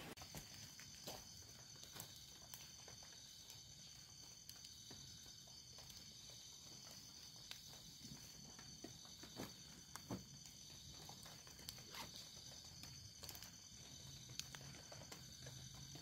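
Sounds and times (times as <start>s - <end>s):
footsteps on forest floor: 0.0s - 2.5s
night insects chorus: 0.0s - 16.0s.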